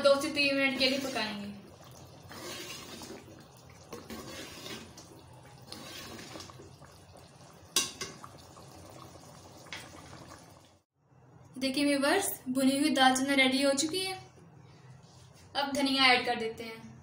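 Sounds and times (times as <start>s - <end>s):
ladle stirring liquid in a pot: 0.1s - 10.8s.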